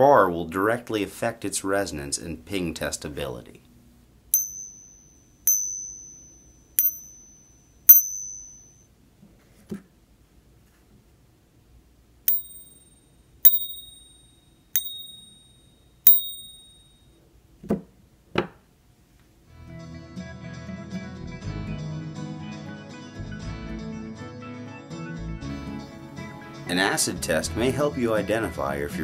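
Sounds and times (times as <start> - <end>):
coin struck with metal rod ringing: 4.4 - 8.8, 12.3 - 17.0.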